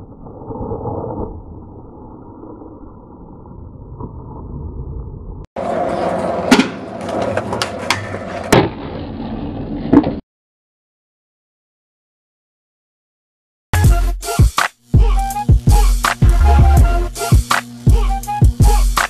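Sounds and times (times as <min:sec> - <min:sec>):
skateboard wheels rolling: 0:00.0 - 0:10.2.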